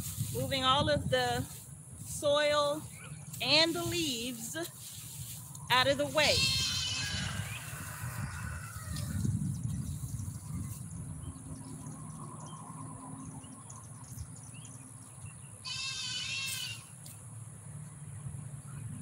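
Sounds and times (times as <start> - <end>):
goat bleating: 6.2 - 7.6, 15.6 - 16.9.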